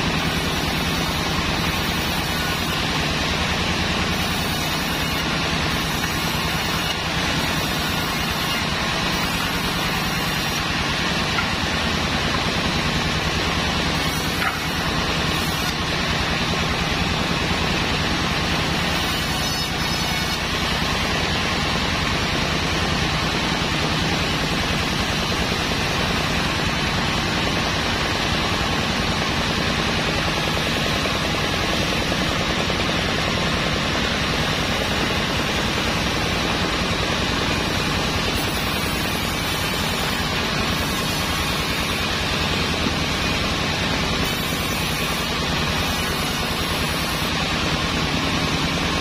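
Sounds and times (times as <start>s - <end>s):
band saw ripping boards: 0.0s - 21.6s, 34.1s - 48.9s
low machine hum: 0.0s - 49.0s.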